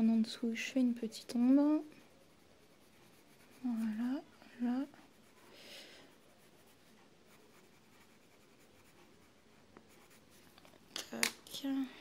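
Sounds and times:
pencil scratching on paper: 1.2s - 10.5s.

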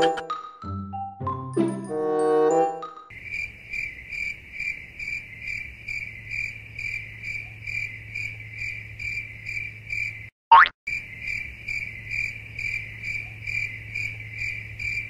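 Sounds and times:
cricket chirping: 3.1s - 10.3s, 10.9s - 15.0s.

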